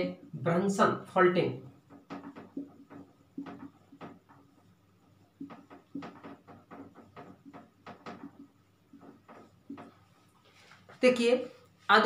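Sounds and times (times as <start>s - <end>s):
marker squeaking on whiteboard: 1.6s - 11.0s.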